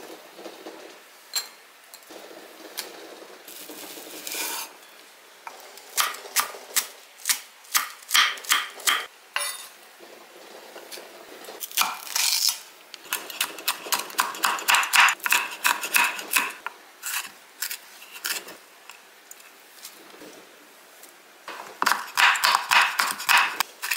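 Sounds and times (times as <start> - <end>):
knife chopping on wooden board: 13.1 - 16.6, 21.8 - 23.9.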